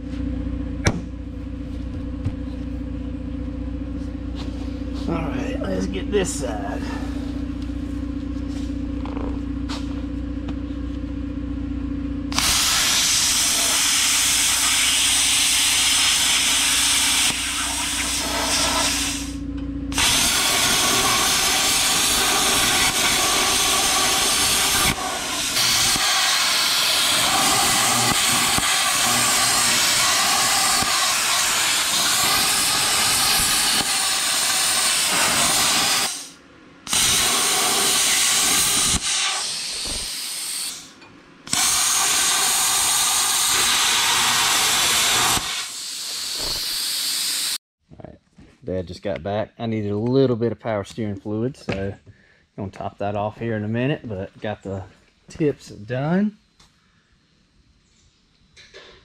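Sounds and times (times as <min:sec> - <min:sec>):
air compressor humming: 0:00.0 - 0:47.6
plasma cutter hissing: 0:12.3 - 0:40.9, 0:41.5 - 0:47.6.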